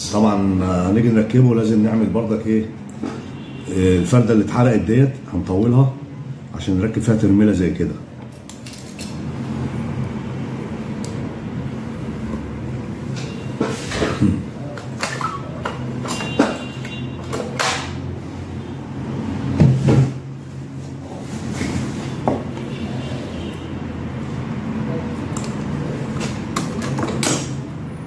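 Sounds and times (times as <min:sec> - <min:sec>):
hands handling small parts: 0:08.3 - 0:09.2.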